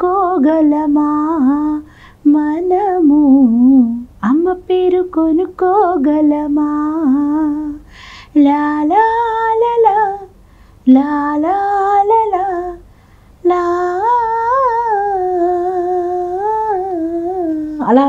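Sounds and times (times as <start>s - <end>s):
woman singing unaccompanied: 0.0s - 18.0s
woman taking a breath: 7.9s - 8.3s.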